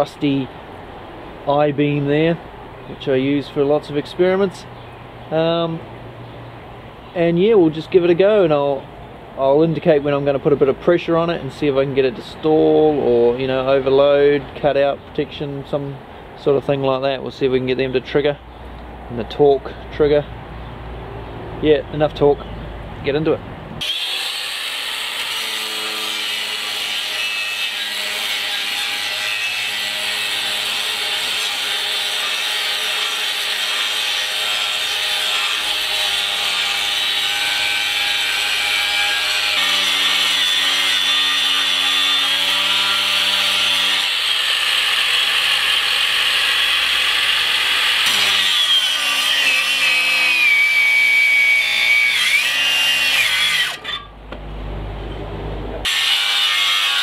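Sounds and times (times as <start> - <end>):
angle grinder grinding steel: 23.8 - 54.2, 55.8 - 57.0.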